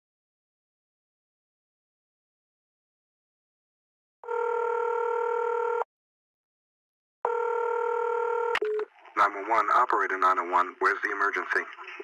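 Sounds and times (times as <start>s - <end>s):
telephone ringing tone: 4.2s - 5.9s, 7.2s - 8.9s.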